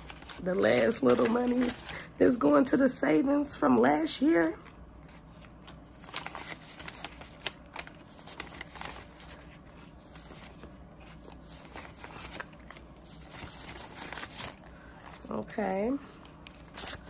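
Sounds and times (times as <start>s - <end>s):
banknotes rustling and flicking: 0.0s - 2.4s, 4.6s - 17.0s.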